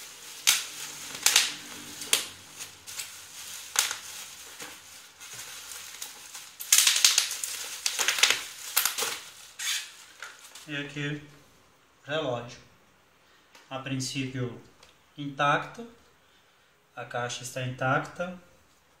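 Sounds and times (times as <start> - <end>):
bubble wrap crinkling: 0.0 - 10.9.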